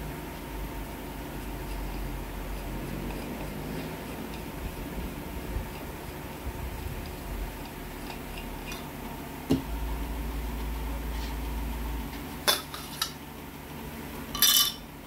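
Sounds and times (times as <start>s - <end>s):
metal parts clinking on table: 14.4s - 14.8s.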